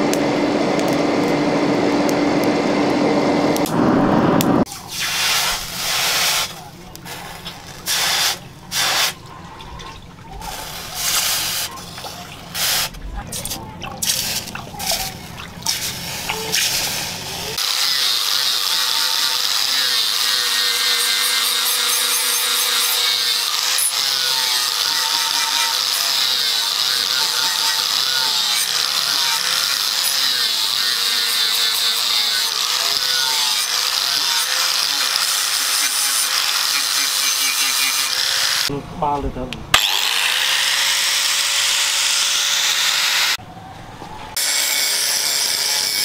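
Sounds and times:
water splashing: 8.7 - 17.1
angle grinder sanding steel: 14.1 - 38.7, 39.8 - 43.4, 44.4 - 46.0.

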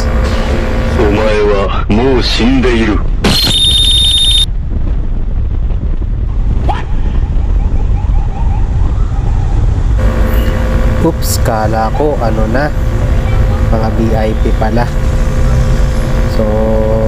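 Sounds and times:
wind noise: 0.0 - 17.0
faint wavering tone: 10.0 - 17.0
high-pitched sound effect: 10.0 - 17.0
horn blast: 10.0 - 17.0
scooter engine: 10.0 - 17.0.

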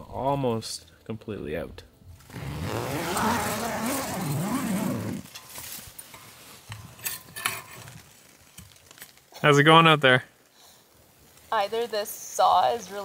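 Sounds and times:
tent zipper pulled open: 2.2 - 5.4.

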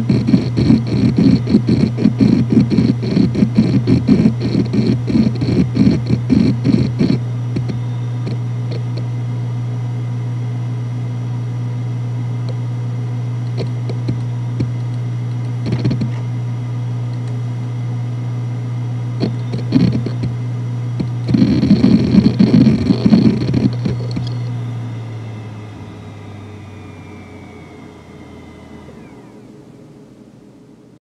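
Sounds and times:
hard drive seek clicks: 0.0 - 9.2, 13.4 - 16.4, 17.1 - 17.4, 19.2 - 29.5
hard drive spinning hum: 0.0 - 31.0.

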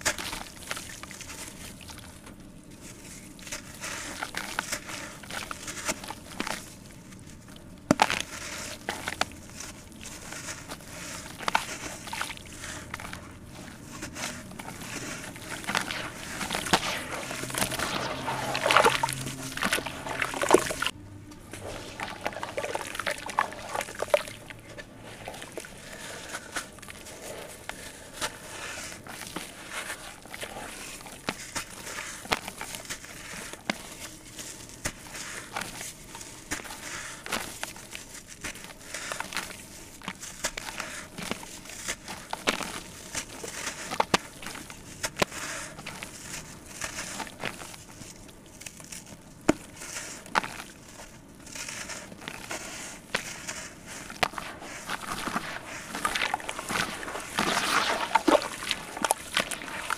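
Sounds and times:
blocks crumbling in water: 14.0 - 27.7, 54.0 - 59.9.

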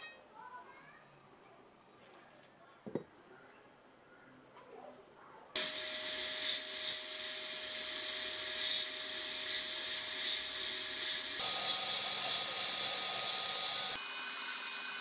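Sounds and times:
sandblast gun hissing: 5.6 - 15.0.

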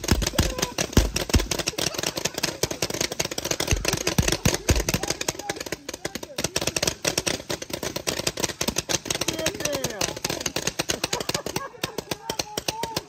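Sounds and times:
paintball markers firing: 0.0 - 13.0
faint shouting: 0.2 - 1.1, 12.0 - 13.0.

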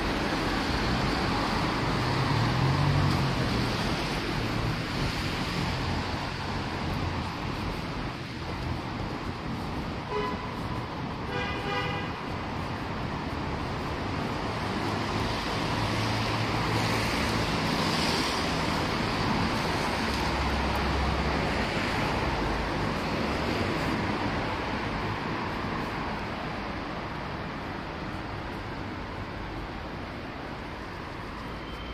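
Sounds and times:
cars passing on wet road: 0.0 - 31.9.

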